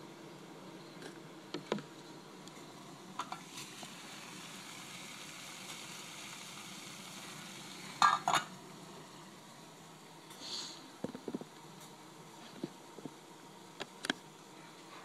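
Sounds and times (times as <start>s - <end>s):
stove hissing: 0.0s - 15.0s
metal pot lid clanking: 8.0s - 8.5s.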